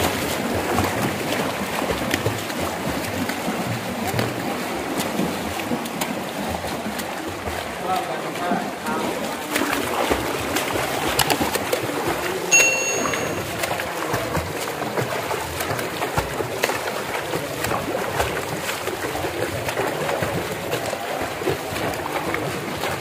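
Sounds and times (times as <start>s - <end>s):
water splashing and sloshing: 0.0s - 23.0s
short high beep: 12.5s - 13.5s.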